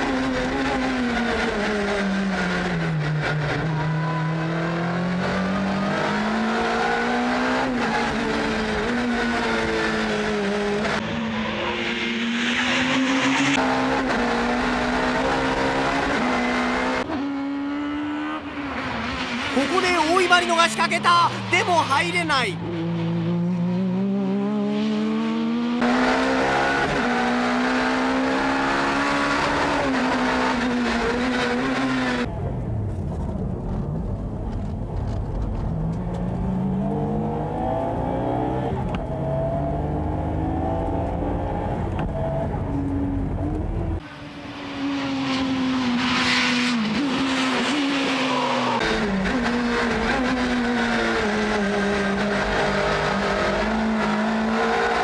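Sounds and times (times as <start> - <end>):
race car engines revving: 0.0 - 55.0.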